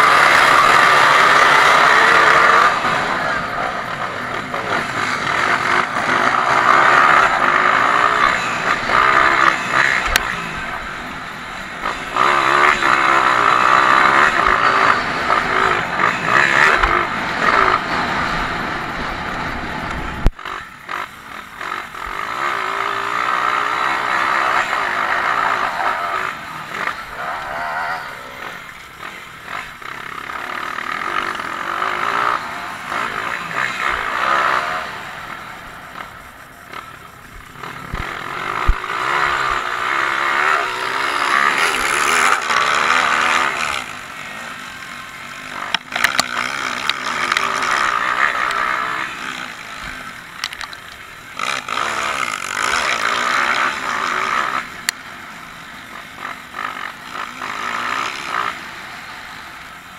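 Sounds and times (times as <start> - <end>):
dirt bike engine revving: 0.0 - 59.9
sharp clicks: 45.6 - 48.7, 50.3 - 51.4.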